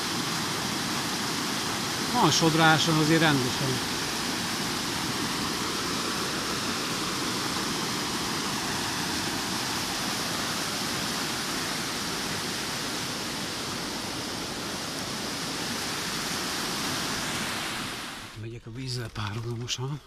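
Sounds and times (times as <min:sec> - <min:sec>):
river water rushing: 0:00.0 - 0:18.4.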